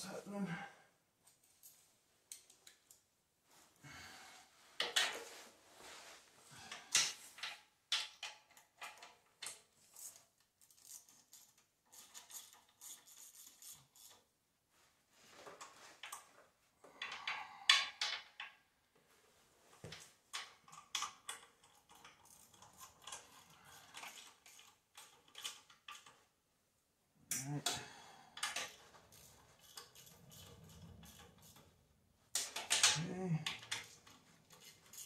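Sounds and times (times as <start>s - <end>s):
rustling of worker moving: 3.4s - 7.4s
hand tools clicking and scraping: 19.8s - 26.2s, 27.3s - 35.0s.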